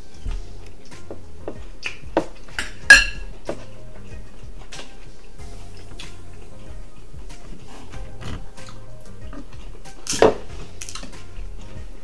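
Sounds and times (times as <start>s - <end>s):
soft music: 0.0s - 12.0s
dishes clicking: 1.1s - 3.7s
metal spoon clinking glass bowl: 2.6s - 3.3s.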